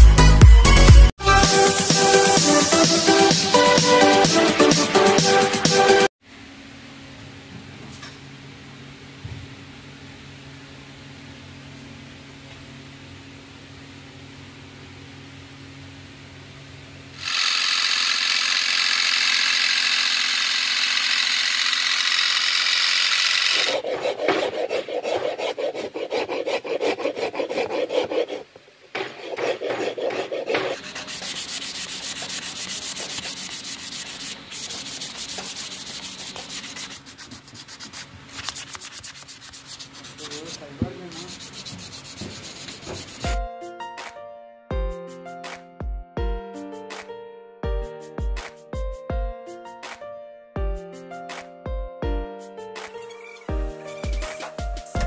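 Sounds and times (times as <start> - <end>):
sanding sponge rubbing wood: 20.6 - 43.4
metal file scraping wood: 22.2 - 43.3.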